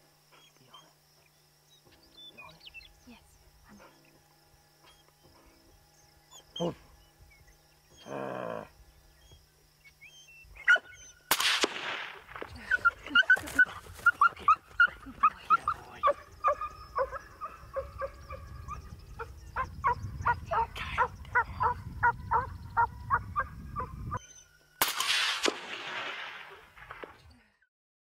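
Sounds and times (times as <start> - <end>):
dog yelping and whimpering: 10.1 - 11.2, 12.6 - 18.8.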